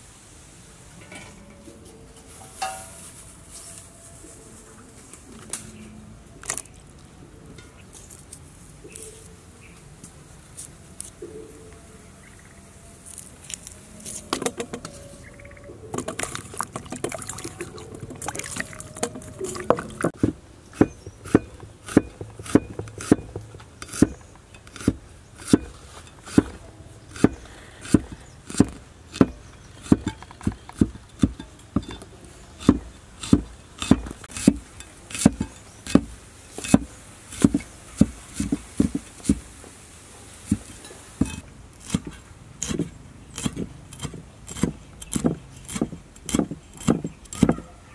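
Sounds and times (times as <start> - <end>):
cleaver chopping on wooden block: 19.8 - 24.2, 27.2 - 32.0, 32.6 - 39.4, 40.5 - 47.6.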